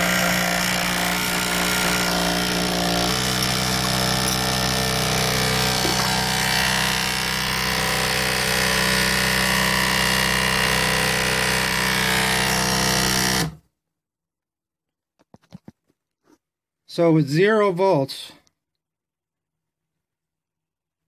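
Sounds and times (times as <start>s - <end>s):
small electric motor humming: 0.0s - 13.6s.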